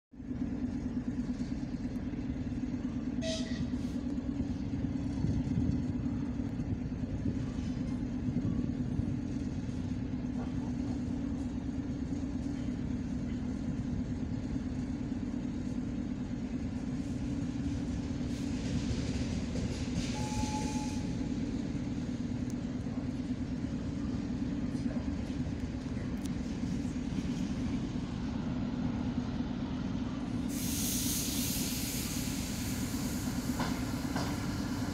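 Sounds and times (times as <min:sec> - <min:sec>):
electric locomotive humming: 0:00.2 - 0:34.9
hiss of air: 0:30.4 - 0:34.9.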